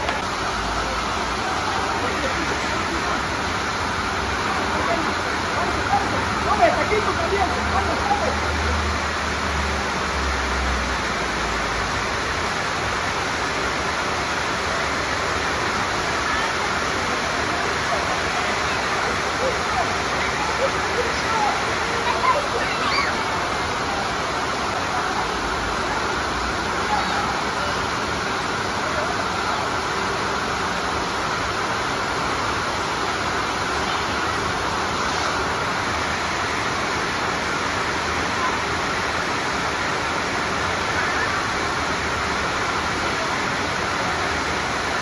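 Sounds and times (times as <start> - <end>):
children shouting at play: 18.6 - 24.1, 26.7 - 27.9, 40.8 - 41.6.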